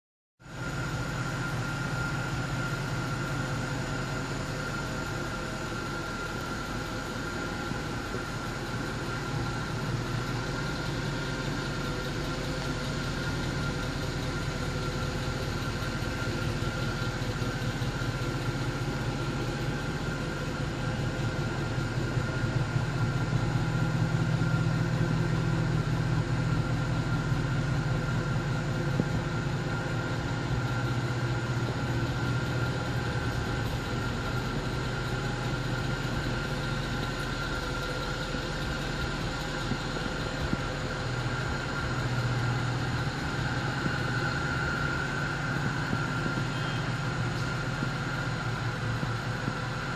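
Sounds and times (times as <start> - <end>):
car engine idling: 0.4 - 49.9
thin high whine: 26.6 - 49.9.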